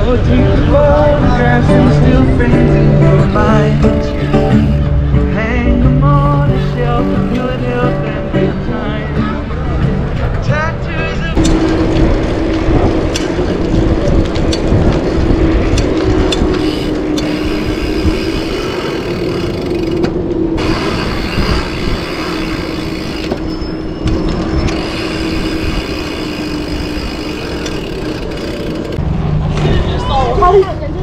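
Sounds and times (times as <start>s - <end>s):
bike tyre roar on tarmac: 0.0s - 8.2s, 9.5s - 31.0s
wind rushing over microphone: 11.3s - 31.0s.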